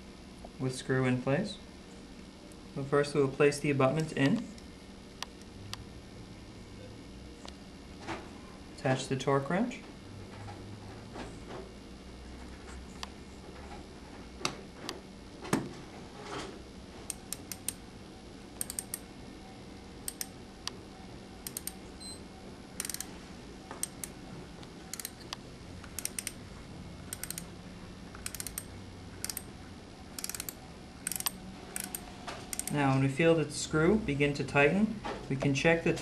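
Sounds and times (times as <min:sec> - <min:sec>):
metallic ratchet clicks: 0:17.1 - 0:17.8, 0:18.6 - 0:19.0, 0:20.1 - 0:20.3, 0:21.4 - 0:21.8, 0:22.8 - 0:23.1, 0:24.9 - 0:25.3, 0:25.9 - 0:26.4, 0:27.1 - 0:27.5, 0:28.1 - 0:29.5, 0:30.2 - 0:32.8.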